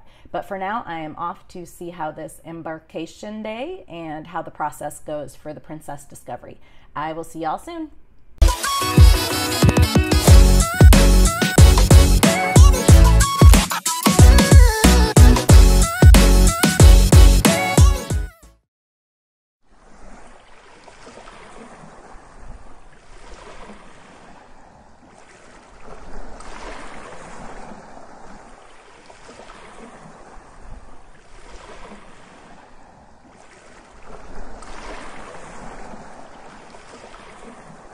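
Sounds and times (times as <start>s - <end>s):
ocean waves washing: 19.7s - 37.9s.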